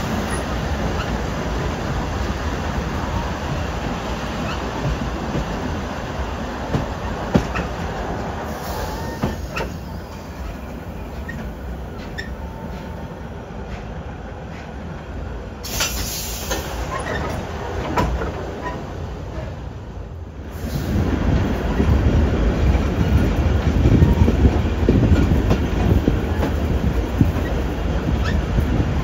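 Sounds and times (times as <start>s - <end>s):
steam train rumbling on track: 0.0s - 29.0s
steam hiss: 8.4s - 10.5s, 15.6s - 17.1s, 20.5s - 21.3s.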